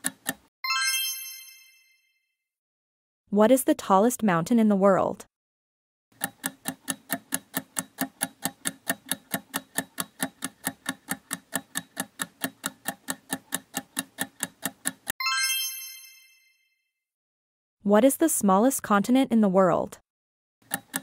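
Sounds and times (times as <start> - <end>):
clock-like ticking: 0.0 - 0.5, 6.2 - 15.1, 20.6 - 21.0
bright bell chime: 0.7 - 2.2, 15.2 - 16.7.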